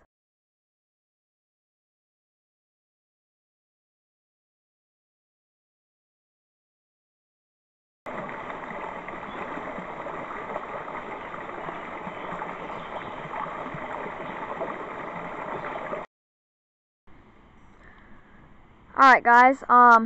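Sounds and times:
stream rushing over rocks: 8.1s - 16.1s.

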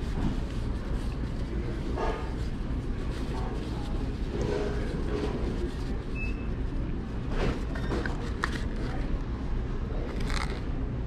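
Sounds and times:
low background rumble: 0.0s - 11.0s
paper and cardboard crumpling: 10.1s - 10.7s.

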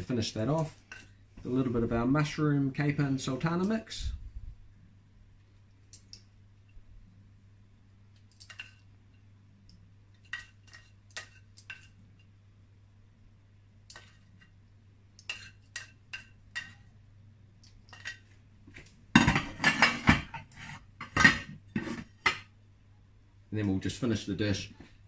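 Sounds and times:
crockery clatter: 19.2s - 22.4s.

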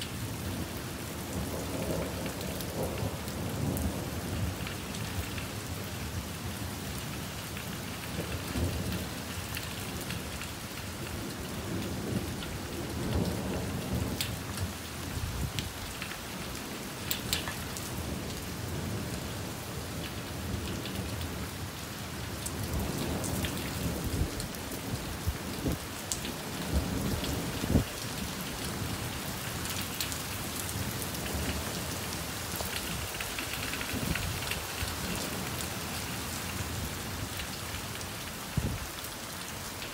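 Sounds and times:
wind rushing through foliage: 0.0s - 39.9s
wind buffeting microphone: 38.5s - 38.9s.

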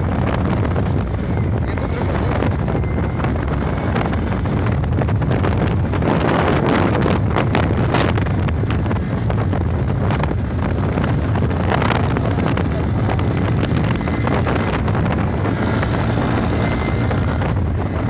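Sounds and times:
road noise: 0.0s - 18.0s
wind buffeting microphone: 0.0s - 18.0s
scooter engine: 6.7s - 18.0s.

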